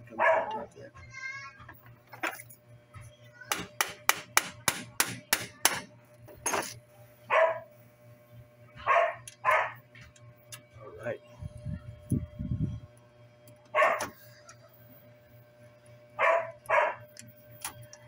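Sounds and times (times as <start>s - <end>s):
dog barking: 0.1s - 0.7s, 7.3s - 7.7s, 8.8s - 9.8s, 13.8s - 14.1s, 16.2s - 17.0s.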